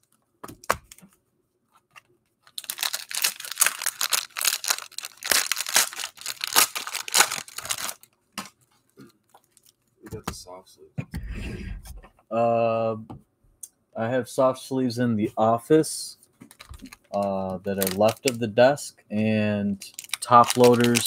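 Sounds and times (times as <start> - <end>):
cellophane crinkling and tearing: 1.9 - 8.6, 9.2 - 9.8, 16.5 - 18.4, 19.8 - 21.0.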